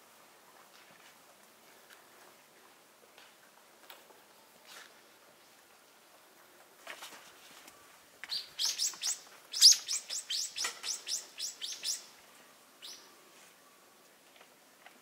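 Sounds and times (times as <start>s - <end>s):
bird calling sharp notes: 8.3s - 12.1s.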